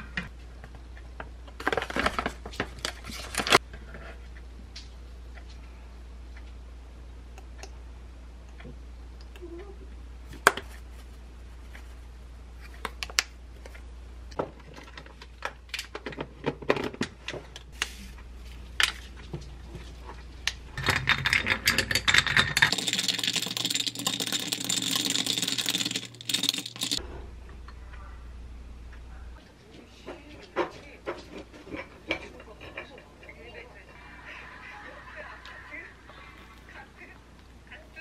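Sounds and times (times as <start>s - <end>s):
ice cubes clinking in a glass: 20.8s - 27.0s.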